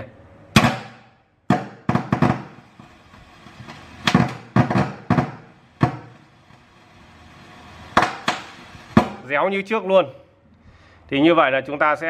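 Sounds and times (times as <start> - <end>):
speaker crackling with loud pops: 0.6 - 3.0, 3.6 - 6.6, 7.9 - 9.4.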